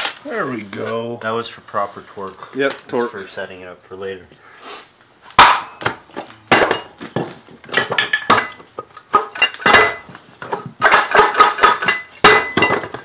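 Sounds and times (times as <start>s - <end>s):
metal tools clanking on metal: 6.6s - 13.0s.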